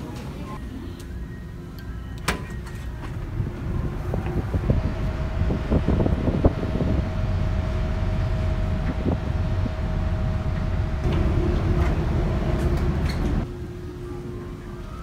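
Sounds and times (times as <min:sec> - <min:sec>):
faint machinery hum: 0:00.0 - 0:15.0
wind noise on microphone: 0:02.4 - 0:13.5
low rumble: 0:02.8 - 0:13.5.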